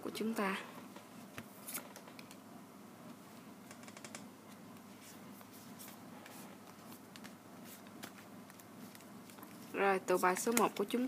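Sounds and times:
low steady hum: 0:00.0 - 0:11.0
cards clicking and rustling: 0:06.7 - 0:09.7.

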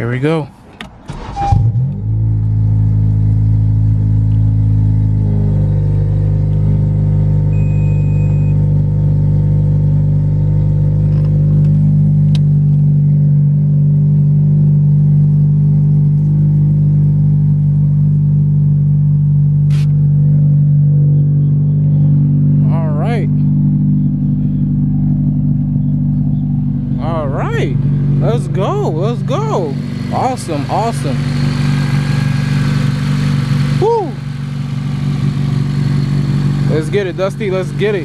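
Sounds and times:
car engine idling: 0:00.0 - 0:38.0
short beep: 0:01.1 - 0:01.9, 0:07.5 - 0:08.8.

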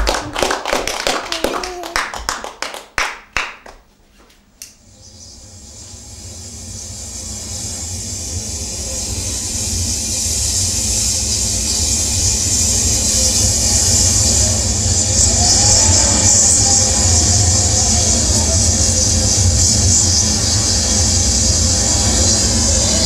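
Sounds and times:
scattered clapping: 0:00.0 - 0:04.8
steady rushing noise: 0:05.3 - 0:23.0.

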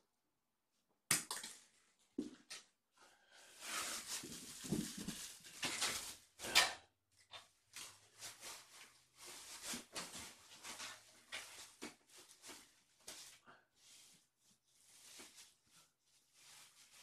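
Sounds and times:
blanket rustling and flapping: 0:14.8 - 0:17.0.

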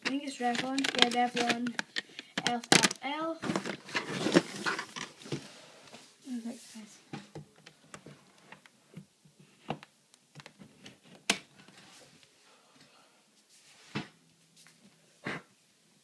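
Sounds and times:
plastic makeup items clicking: 0:00.0 - 0:03.0.

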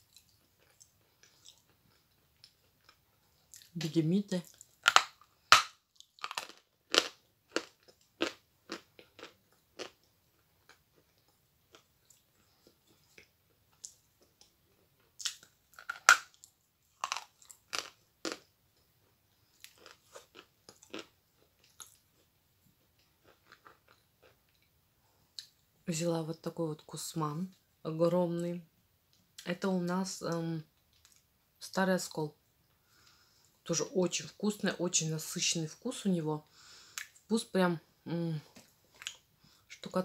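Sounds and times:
chalk crunching when chewed: 0:04.5 - 0:14.3, 0:19.5 - 0:22.3.

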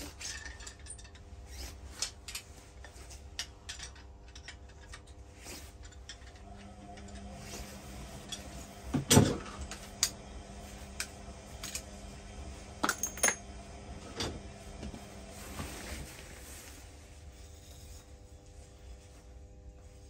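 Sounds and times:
faint steady hum: 0:00.0 - 0:20.0
metal tools clinking: 0:12.8 - 0:13.4.

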